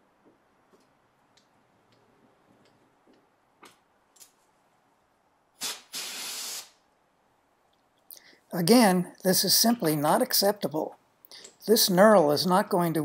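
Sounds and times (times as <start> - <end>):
pressurised spray hissing: 5.6 - 6.8.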